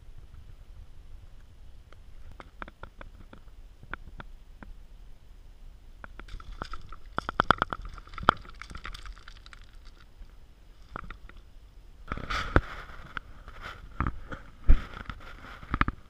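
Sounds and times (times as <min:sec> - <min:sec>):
boots crunching on stones: 0:06.3 - 0:10.0.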